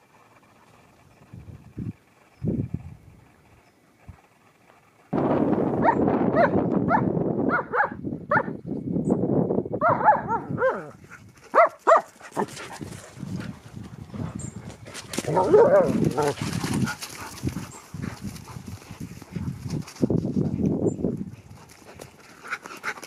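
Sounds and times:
dog yelping and barking: 9.8 - 10.9, 11.5 - 12.1, 15.3 - 16.3.

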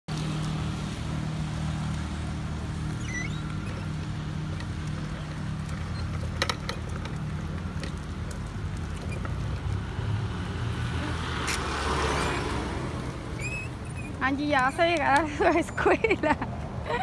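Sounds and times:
plastic wheels rolling on concrete: 0.1 - 17.0
light clicks and rattles: 2.9 - 9.9.

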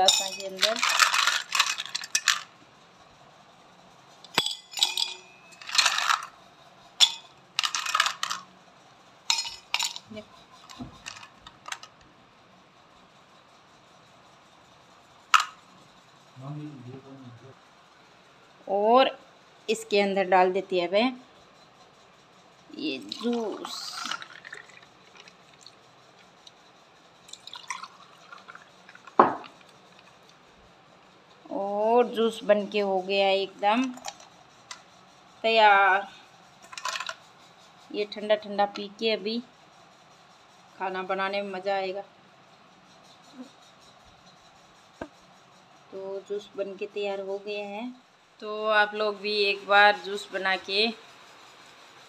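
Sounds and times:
ice cubes clinking in steel tumblers: 0.0 - 2.5, 4.3 - 6.4, 7.0 - 8.5, 9.3 - 10.2, 23.0 - 25.8, 27.3 - 30.2, 33.7 - 34.3, 36.7 - 37.2
liquid pouring and splashing: 23.2 - 25.7, 27.3 - 29.2.

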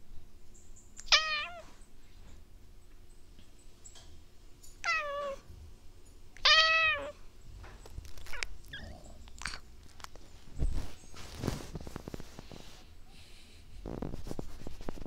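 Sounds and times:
cat meowing: 1.0 - 1.7, 4.8 - 5.4, 6.4 - 7.2.

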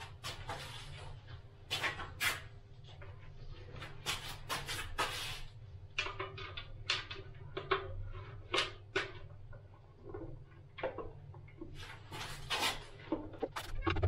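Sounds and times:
plastic scraping and rustling: 10.2 - 14.0.

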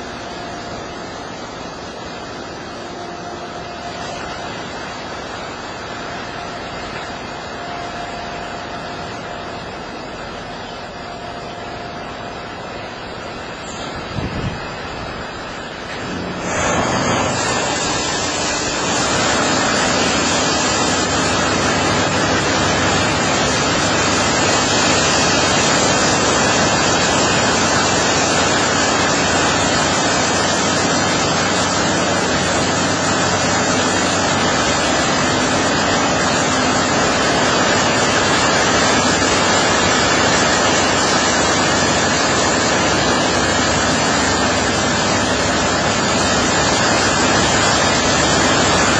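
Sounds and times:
high-pressure water spray hissing: 12.6 - 48.9.

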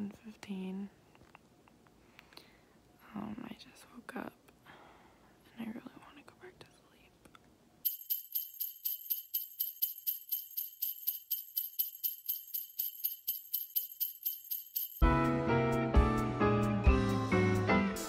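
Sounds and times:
sleigh bells jingling: 7.8 - 15.2
background music: 15.0 - 18.0.

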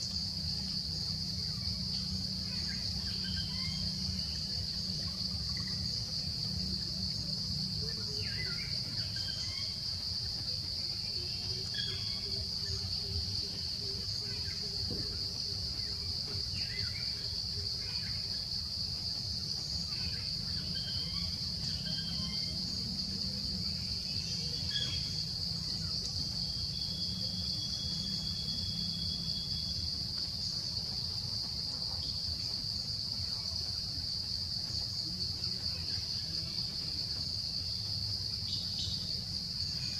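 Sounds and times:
insect chorus: 0.0 - 39.9.

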